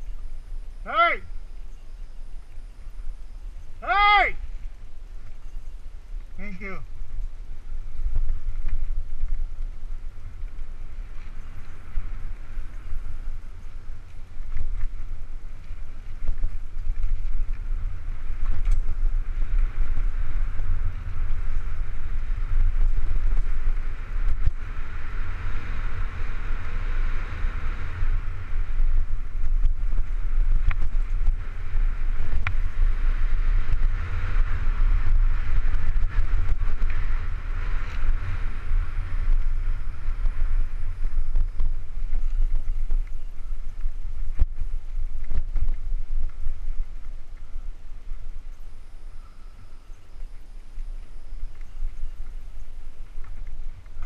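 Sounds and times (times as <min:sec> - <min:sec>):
wind rumble on microphone: 0:00.0 - 0:54.0
bike clicks and rattles: 0:08.0 - 0:47.6.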